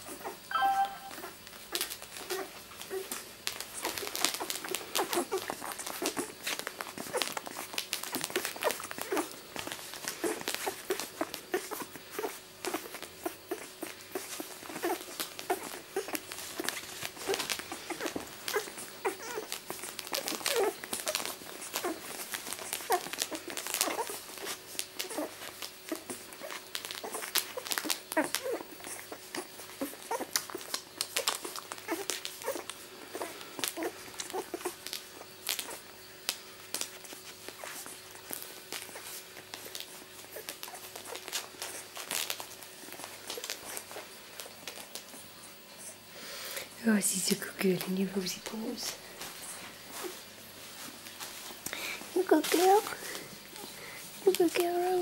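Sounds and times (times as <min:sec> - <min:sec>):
puppies suckling: 0:00.0 - 0:00.4, 0:01.1 - 0:55.0
puppy squeaks and grunts: 0:03.8 - 0:09.4, 0:10.1 - 0:36.0, 0:36.7 - 0:44.9.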